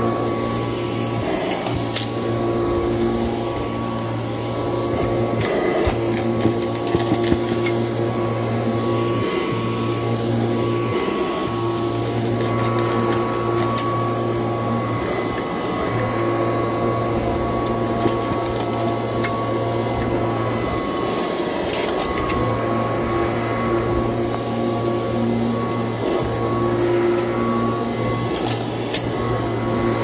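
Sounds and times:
upright vacuum running: 0.0 - 30.0.

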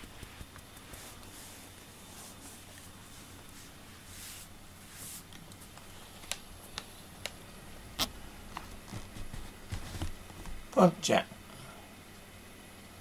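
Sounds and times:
soft rustling: 0.0 - 6.2, 8.5 - 10.7.

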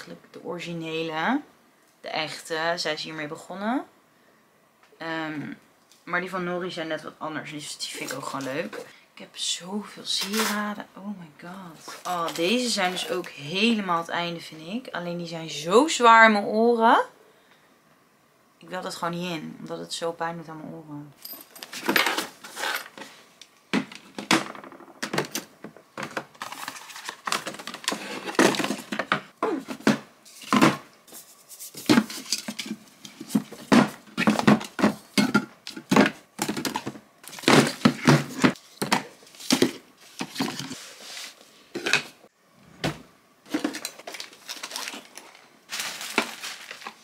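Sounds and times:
jewelry clinking: 21.2 - 23.0.

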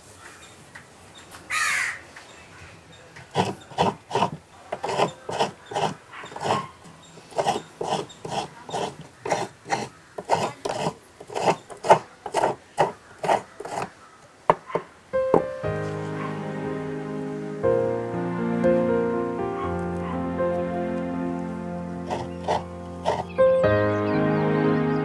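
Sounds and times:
coconut rasping on scraper blade: 3.2 - 14.6, 22.1 - 23.3.

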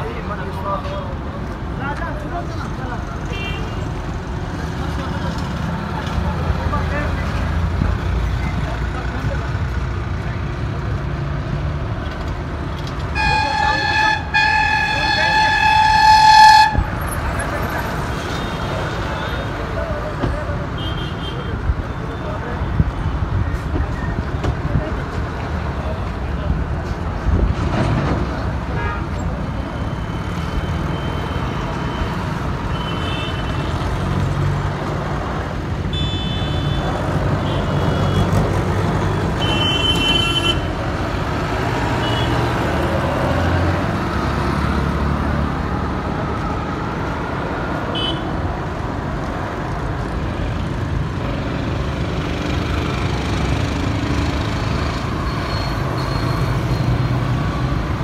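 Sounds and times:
road traffic rumble: 0.0 - 58.0
vehicle horn toots: 13.1 - 16.9, 35.9 - 38.2, 47.9 - 48.2.

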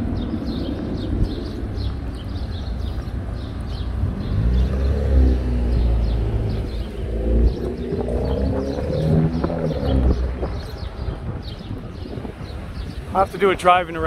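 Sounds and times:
car engine accelerating: 3.7 - 12.3.

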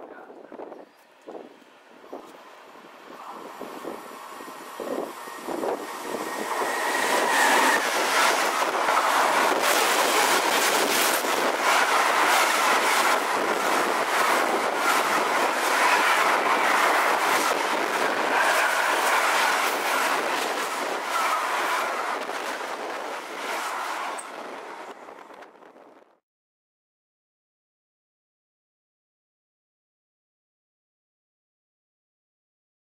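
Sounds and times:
freight train passing: 0.2 - 25.9.

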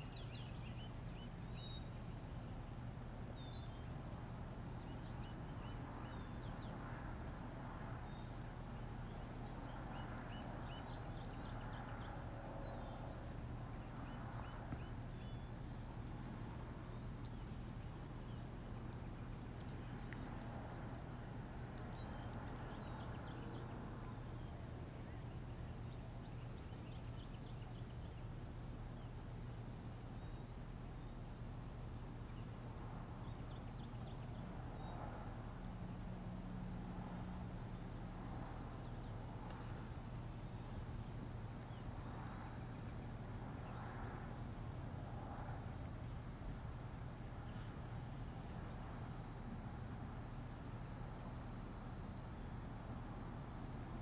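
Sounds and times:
high-pitched insect buzzing: 37.2 - 54.0.

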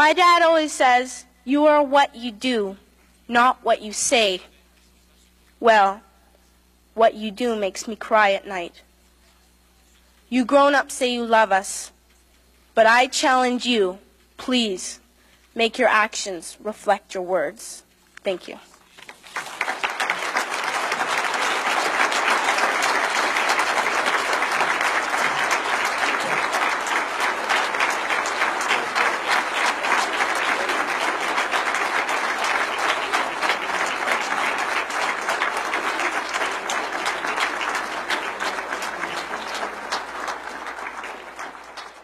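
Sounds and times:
audience applauding: 19.0 - 42.0.

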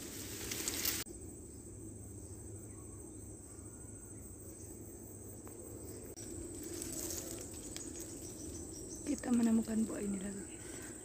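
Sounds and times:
rustling: 0.0 - 1.1, 6.2 - 10.0
insects chirring: 0.0 - 11.0.

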